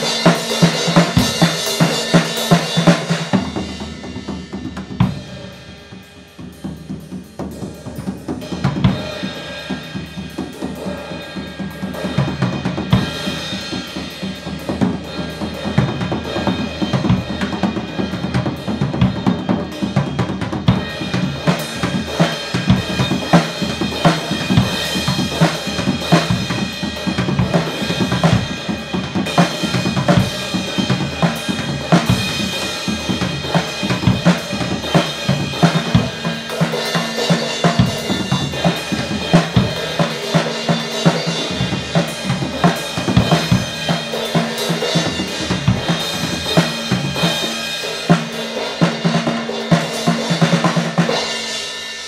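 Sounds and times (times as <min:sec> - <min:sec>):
snare drum: 0:00.0 - 0:05.2, 0:18.2 - 0:51.4.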